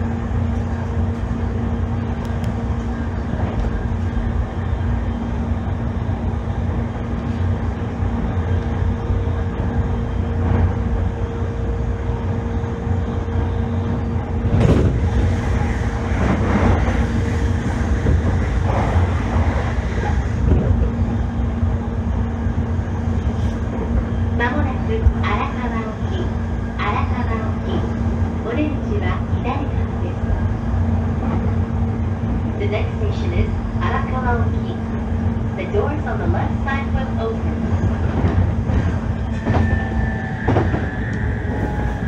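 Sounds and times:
constant hum: 0.0 - 42.0
train interior rumble: 0.0 - 42.0.

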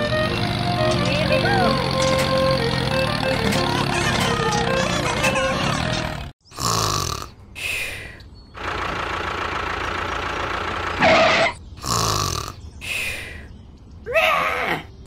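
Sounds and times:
cartoon snoring: 5.6 - 7.4, 11.8 - 12.6.

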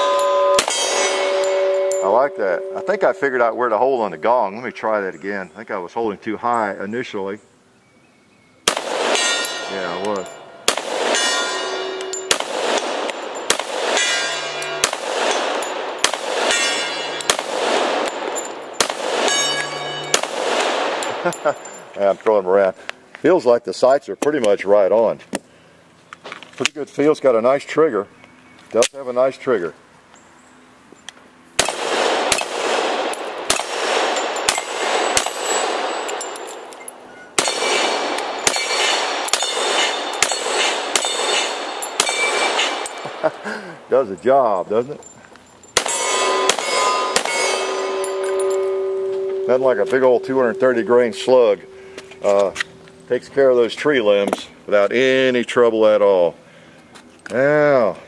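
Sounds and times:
steel gong ringing: 0.0 - 4.8, 9.2 - 12.5, 13.2 - 15.9, 19.2 - 21.8, 45.8 - 53.6
pistol shots: 0.5 - 3.0, 8.6 - 21.4, 31.6 - 43.4, 45.8 - 51.8.

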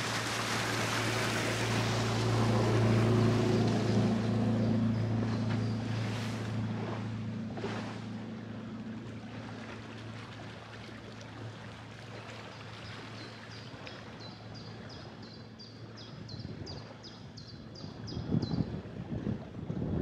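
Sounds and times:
water wash: 0.0 - 14.3
wind noise: 17.9 - 20.0.

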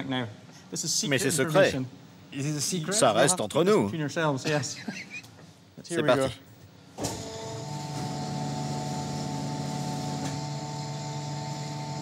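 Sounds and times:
sausage-filling machine humming: 7.1 - 12.0.

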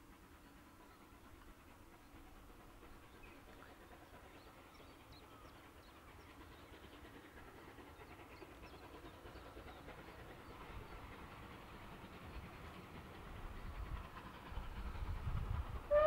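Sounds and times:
distant steam train approaching: 0.0 - 16.0.

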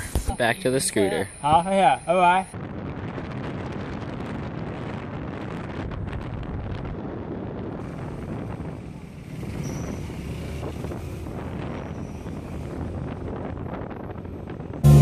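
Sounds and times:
wind rushing over microphone: 2.3 - 15.0
scooter engine and road rumble: 2.6 - 15.0.

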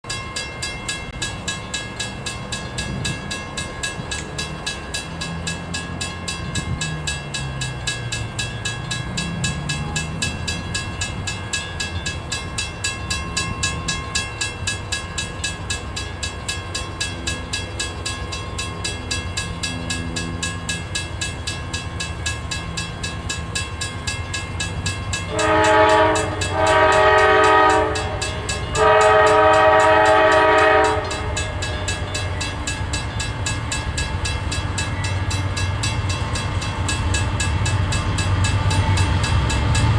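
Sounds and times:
crossing bell dinging: 0.0 - 39.9
freight train diesel engines: 0.0 - 39.9
locomotive horn blasts: 25.3 - 32.1.

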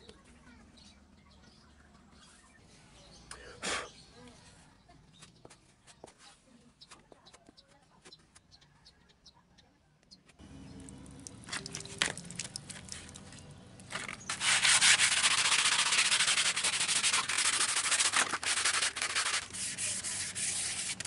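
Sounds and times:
sandpaper rubbing on fiberglass: 13.9 - 21.0.

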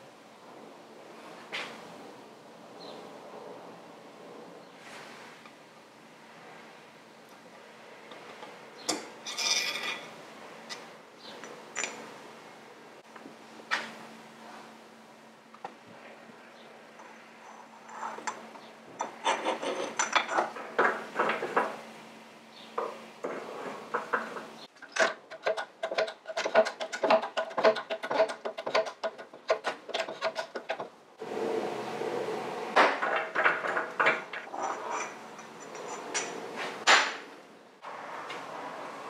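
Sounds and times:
metal tools clinking: 9.2 - 10.1.

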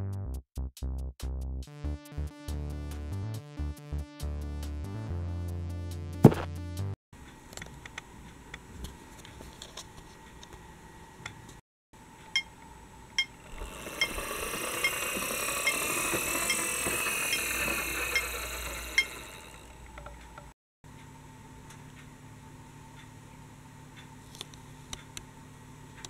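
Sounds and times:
crossing signal ticking: 13.2 - 20.5
toy tram passing with whine: 13.4 - 20.5.

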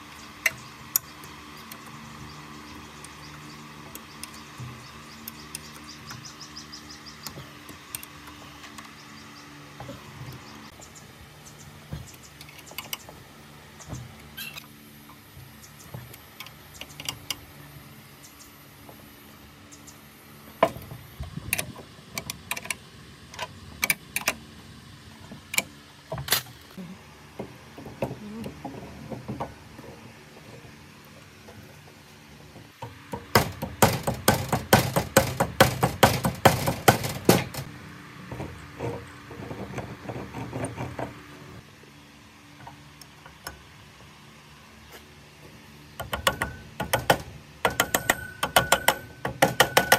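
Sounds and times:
metal parts clicking and knocking: 20.6 - 24.4, 46.0 - 49.9.

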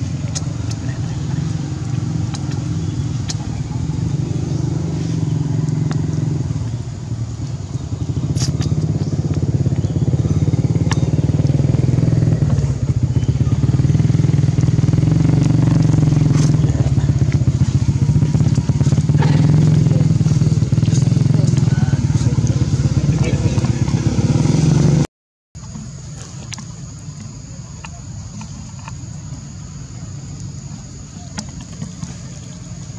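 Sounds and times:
engine droning with rapid pulsing: 0.0 - 32.9.

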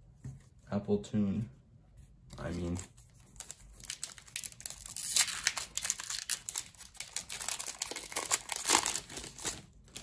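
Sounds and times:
foil wrapper crinkling and tearing: 3.4 - 10.0.

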